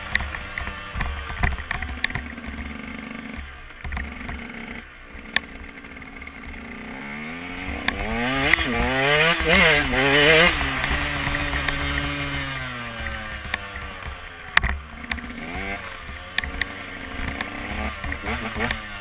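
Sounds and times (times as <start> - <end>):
two-stroke motorcycle engine: 0.0 - 19.0.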